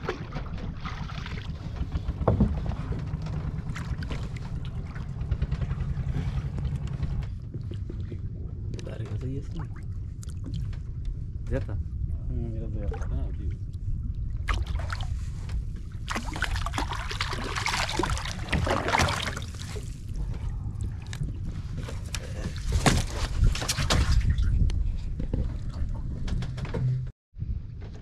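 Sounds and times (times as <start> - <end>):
low rumble: 0.0 - 28.0
knocks on wooden boat: 0.4 - 3.4
fish splashing in water: 14.4 - 15.2, 16.0 - 20.2.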